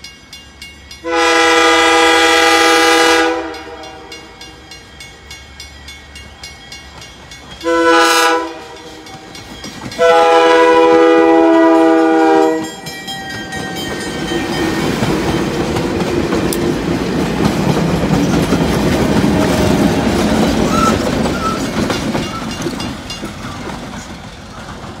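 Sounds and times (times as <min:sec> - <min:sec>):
train wheels rumbling on rail: 0:00.0 - 0:25.0.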